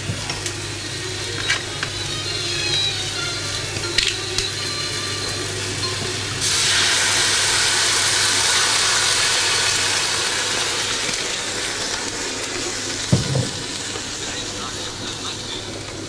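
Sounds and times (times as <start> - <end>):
food sizzling in hot fat: 0.0 - 16.0.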